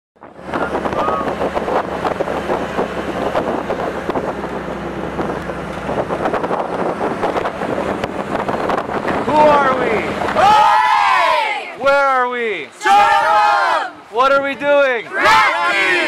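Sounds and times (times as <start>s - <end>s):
wind buffeting microphone: 0.2s - 12.2s.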